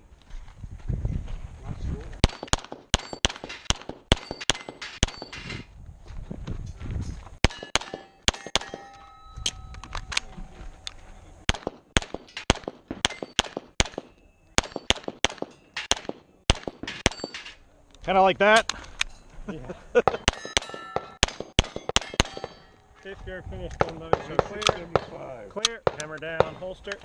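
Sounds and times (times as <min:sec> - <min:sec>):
pistol shots: 0:02.2 - 0:05.3, 0:07.4 - 0:08.9, 0:11.5 - 0:17.5, 0:20.1 - 0:22.7, 0:25.8 - 0:26.6
steel targets clanging: 0:02.2 - 0:05.7, 0:07.4 - 0:10.1, 0:12.2 - 0:16.1, 0:16.7 - 0:17.6, 0:20.0 - 0:22.8.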